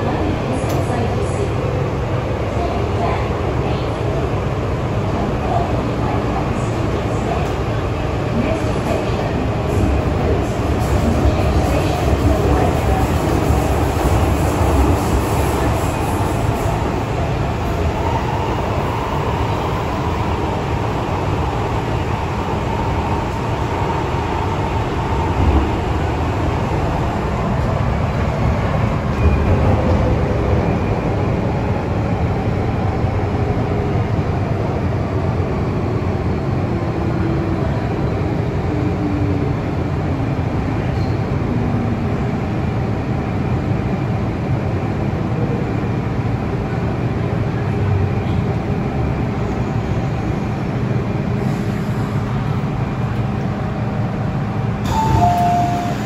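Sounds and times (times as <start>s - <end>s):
train rumbling on rails: 0.0s - 56.0s
train whining tones: 54.8s - 56.0s.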